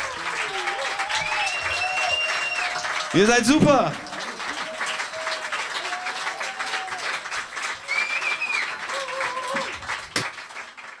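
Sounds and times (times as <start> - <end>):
audience applauding: 0.0 - 11.0
sharp clap: 4.4 - 11.0.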